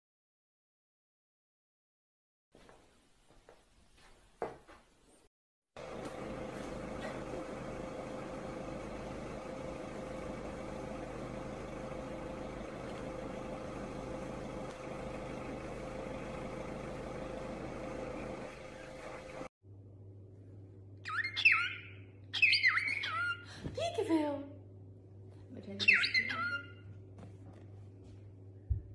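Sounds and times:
steady mechanical hum: 0:05.8 - 0:28.9.

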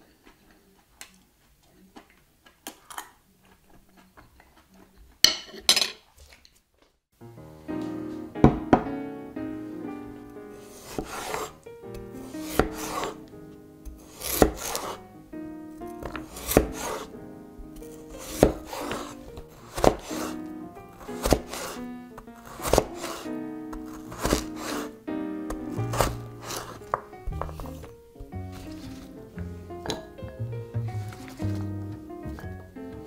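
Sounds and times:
soft background music: 0:07.2 - 0:33.0
cleaver slicing potatoes on board: 0:10.7 - 0:15.0, 0:15.9 - 0:17.1, 0:17.8 - 0:20.4, 0:21.0 - 0:29.1.

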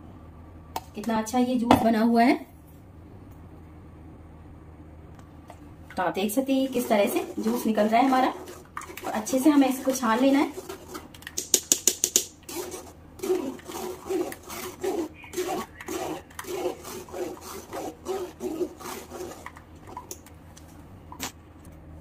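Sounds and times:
spoon scraping pulp through strainer: 0:06.2 - 0:11.4, 0:12.2 - 0:20.2.

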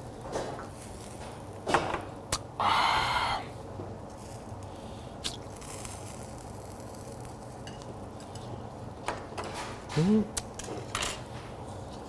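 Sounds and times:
person humming: 0:10.0 - 0:10.4.

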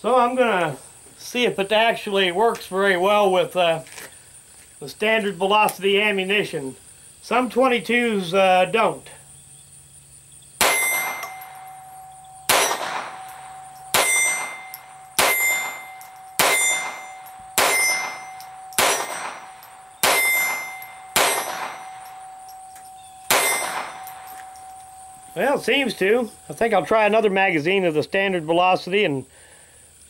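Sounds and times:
pistol shots: 0:10.6 - 0:22.4, 0:23.3 - 0:24.5
short metallic ring: 0:10.6 - 0:26.8.

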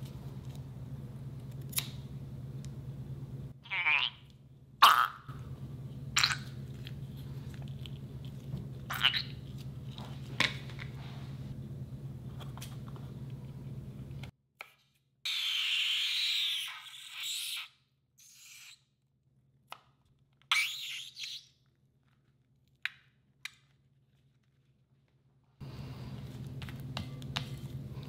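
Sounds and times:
steady low hum: 0:00.0 - 0:03.6, 0:04.2 - 0:14.3, 0:25.6 - 0:28.0.

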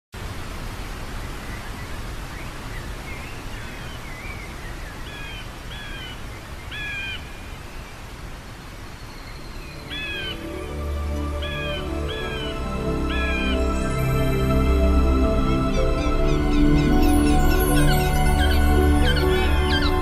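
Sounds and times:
bird calls: 0:01.2 - 0:08.1, 0:08.8 - 0:20.0
waterfall rushing: 0:08.0 - 0:20.0.

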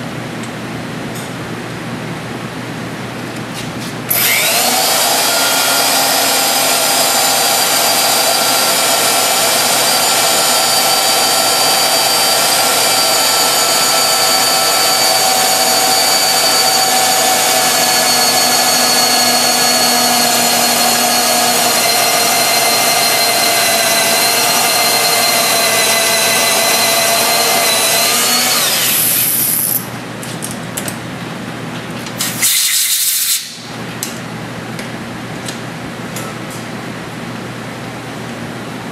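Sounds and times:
electric drill boring into metal: 0:04.1 - 0:29.8.

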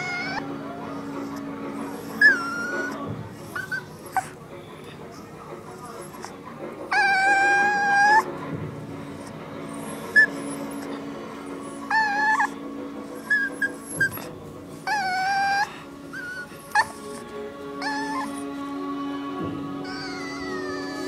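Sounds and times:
puppy squeaks: 0:00.0 - 0:04.4, 0:05.7 - 0:08.3, 0:09.2 - 0:18.6, 0:19.8 - 0:21.0
puppy whining and crying: 0:00.0 - 0:04.4, 0:05.8 - 0:08.3, 0:09.2 - 0:21.0.

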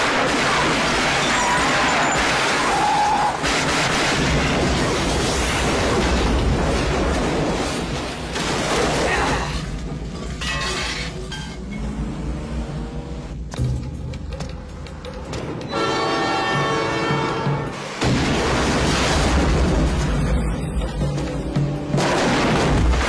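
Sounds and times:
explosion with heavy rumble: 0:18.0 - 0:20.4.

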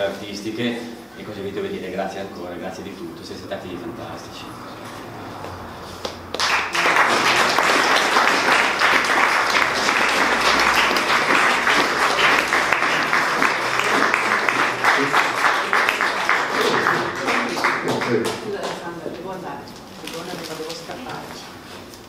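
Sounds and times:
audience applauding: 0:06.1 - 0:18.8.

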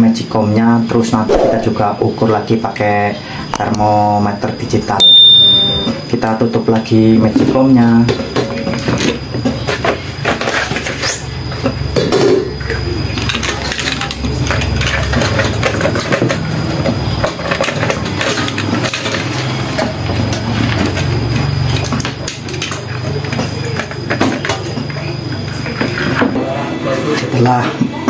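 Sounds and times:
low hum: 0:01.3 - 0:01.9.

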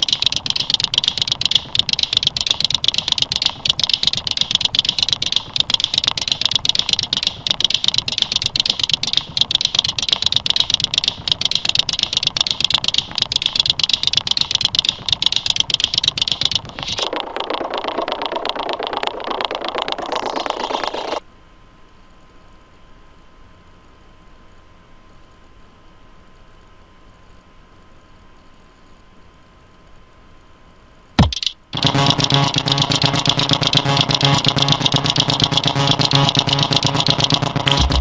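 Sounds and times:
fast continuous clicking: 0:00.0 - 0:21.2, 0:31.2 - 0:38.0.

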